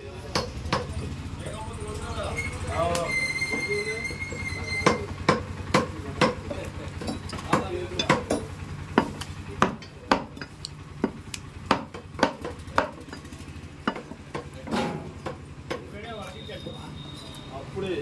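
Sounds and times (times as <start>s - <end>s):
cleaver chopping meat: 4.8s - 13.2s.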